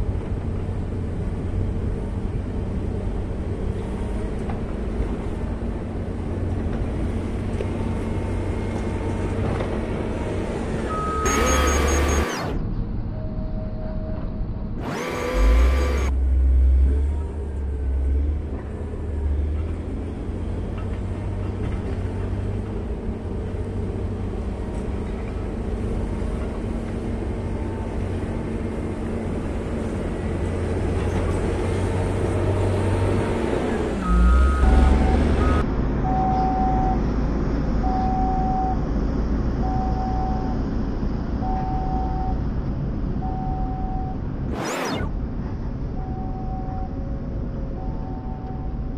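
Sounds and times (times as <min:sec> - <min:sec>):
reversing alarm beeps: 0:10.9 - 0:12.5, 0:34.0 - 0:37.0, 0:37.8 - 0:38.8, 0:39.6 - 0:40.6, 0:41.4 - 0:42.4, 0:43.2 - 0:45.0, 0:46.0 - 0:48.9.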